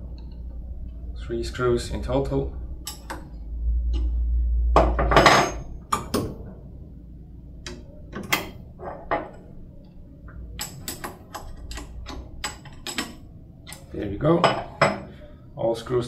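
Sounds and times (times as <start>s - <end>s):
low rumble: 0.0s - 8.8s
wrench clinking on metal: 2.8s - 3.2s
sharp metallic clicks: 2.8s - 3.3s.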